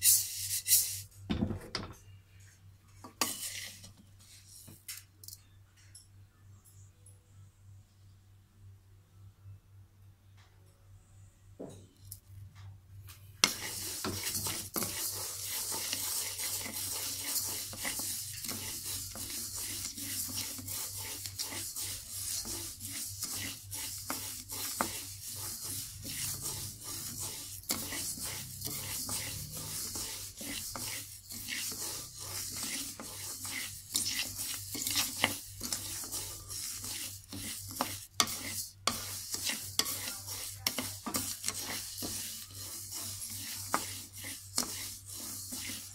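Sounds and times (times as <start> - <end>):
spatula scraping rice in a wok: 3.0 - 4.6, 13.4 - 45.9.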